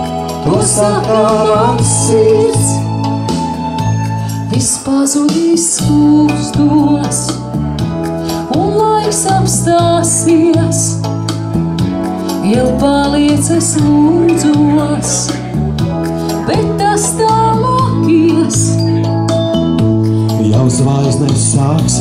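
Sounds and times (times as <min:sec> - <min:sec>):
woman singing into a microphone: 0:00.0 - 0:03.1, 0:04.3 - 0:07.5, 0:08.3 - 0:11.1, 0:12.3 - 0:15.6, 0:16.3 - 0:19.0
electronic keyboard chords: 0:00.0 - 0:22.0.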